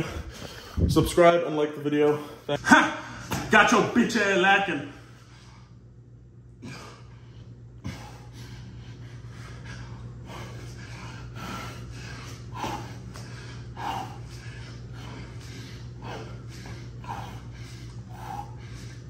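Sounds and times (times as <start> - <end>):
man breathing hard: 0.0 - 1.1, 6.6 - 19.0
steady low hum: 0.0 - 19.0.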